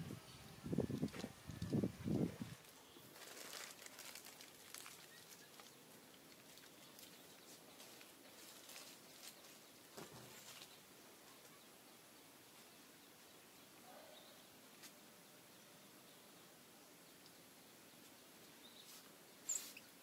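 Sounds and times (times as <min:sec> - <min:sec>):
soft ticks and rustles: 0:00.9 - 0:11.6.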